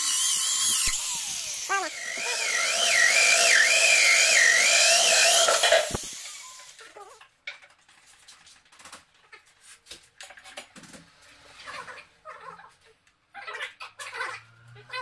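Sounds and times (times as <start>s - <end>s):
electric drill whining into stone: 0.0s - 6.8s.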